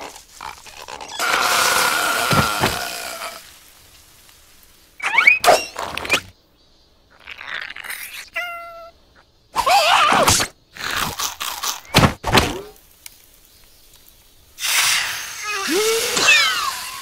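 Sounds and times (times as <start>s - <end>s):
cartoon high wavering squeals: 5.0s - 5.8s, 14.7s - 17.0s
sharp thuds: 11.9s - 12.8s
hissing whoosh: 14.6s - 17.0s.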